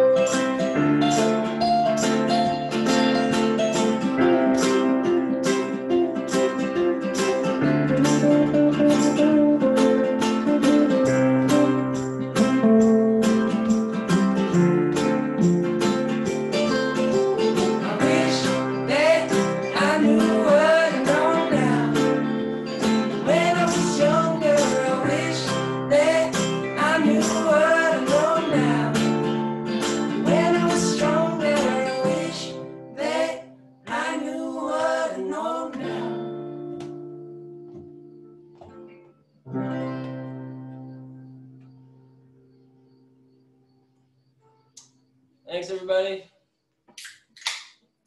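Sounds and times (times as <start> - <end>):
stage keyboard: 0.0 - 33.4
acoustic guitars strummed: 0.0 - 43.3
man singing: 17.8 - 22.2, 23.2 - 29.1, 30.2 - 32.6.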